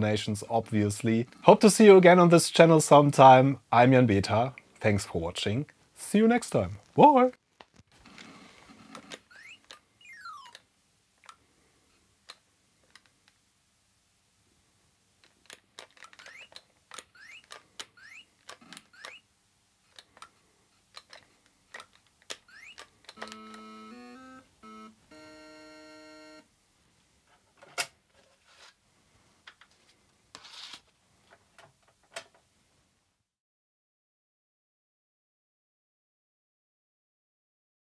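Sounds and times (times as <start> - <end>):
joystick clicks: 8.9 - 11.4, 15.2 - 19.2, 19.9 - 24.4
held electronic tone: 9.3 - 10.6, 22.5 - 26.5
rising electronic chirps: 9.3 - 10.6, 22.5 - 26.4
buzzy electronic notes: 23.2 - 26.5.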